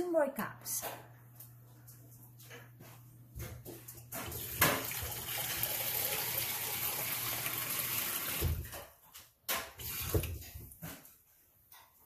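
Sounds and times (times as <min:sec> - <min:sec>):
kitchen tap running: 0:04.0 - 0:08.9, 0:09.6 - 0:10.6.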